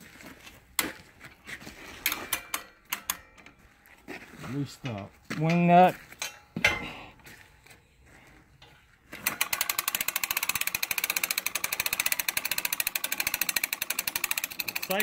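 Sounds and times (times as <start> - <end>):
winch ratchet clicking: 2.0 - 3.3, 9.2 - 15.0.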